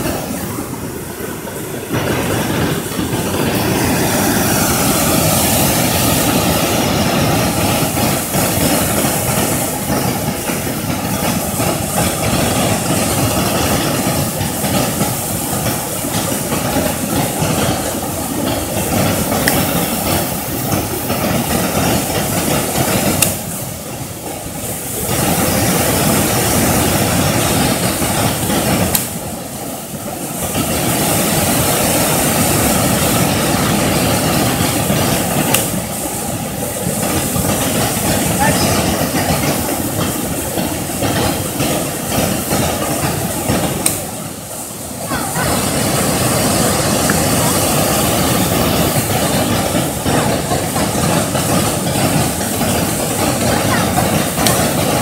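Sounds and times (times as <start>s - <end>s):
river water rushing: 0.0s - 14.8s, 30.5s - 55.0s.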